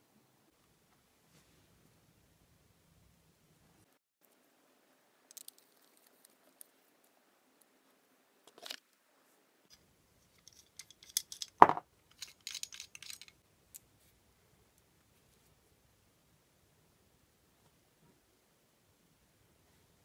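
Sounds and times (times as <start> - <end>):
small metallic clinks: 9.7 - 13.4
metal nozzles clicking: 10.3 - 13.4.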